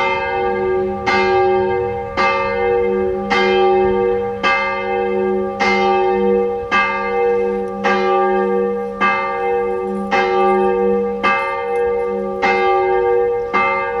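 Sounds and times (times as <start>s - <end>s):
church bell tolling: 0.0s - 14.0s.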